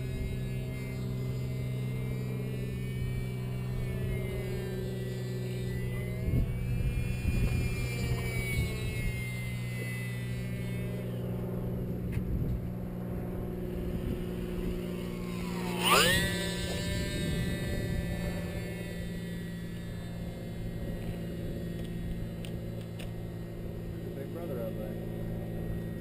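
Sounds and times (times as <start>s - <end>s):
distant electric motor whine: 0.0s - 26.0s
steady low hum: 0.0s - 26.0s
wind on microphone: 2.7s - 22.8s.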